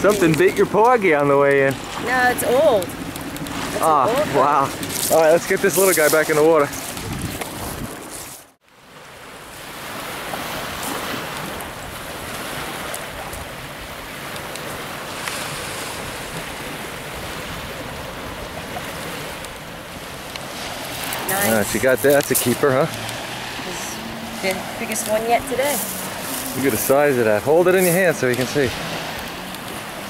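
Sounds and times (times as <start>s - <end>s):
waves washing onto pebbles: 0.0s - 30.0s
wind on microphone: 1.8s - 8.5s.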